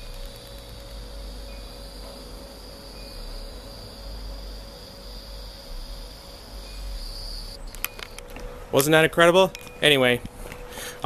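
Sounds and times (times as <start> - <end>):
insects trilling: 0.0 - 8.3
faint low hum: 0.0 - 11.0.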